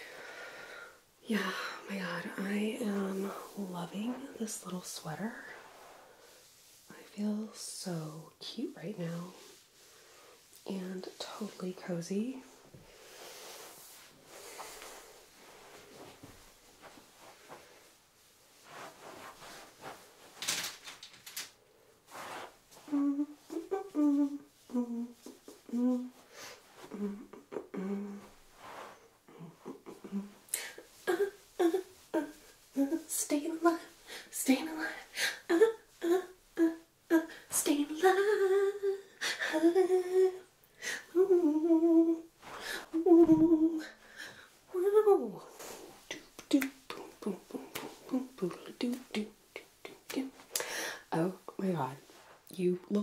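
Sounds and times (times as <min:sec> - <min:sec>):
knit fabric rustling: 0:01.3 - 0:40.5, 0:41.1 - 0:53.0
woman humming: 0:22.8 - 0:26.2, 0:26.8 - 0:28.4, 0:29.3 - 0:33.0, 0:41.1 - 0:42.3, 0:42.9 - 0:44.0, 0:46.5 - 0:50.2.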